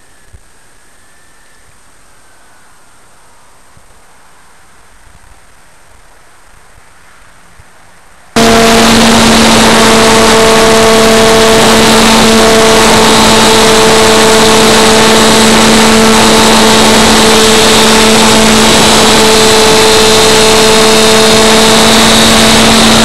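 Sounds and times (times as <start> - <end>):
model airplane motor whine: 8.4 - 23.0.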